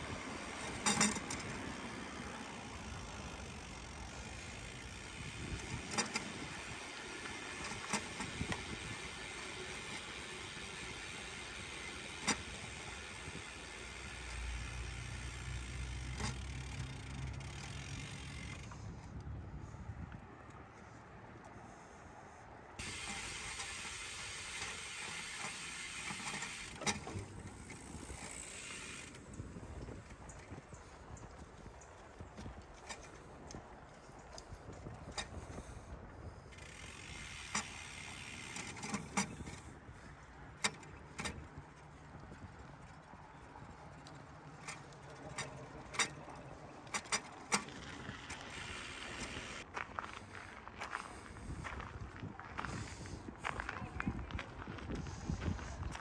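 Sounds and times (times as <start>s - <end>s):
sharp clicks and rattles: 0.0s - 18.8s, 22.8s - 35.6s, 36.5s - 39.7s, 40.6s - 49.7s
bicycle rolling along path: 0.0s - 56.0s.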